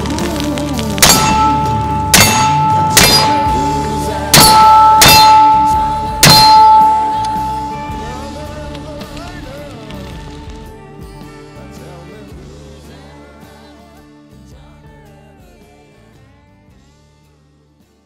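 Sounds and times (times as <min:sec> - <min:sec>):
bullets clanging on steel plate: 0:01.0 - 0:07.8.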